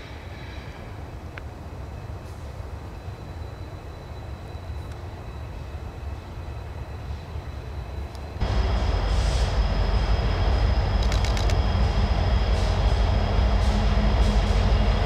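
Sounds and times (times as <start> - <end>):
diesel locomotive engine rumble: 0.0 - 15.0
high steady whine: 8.4 - 15.0.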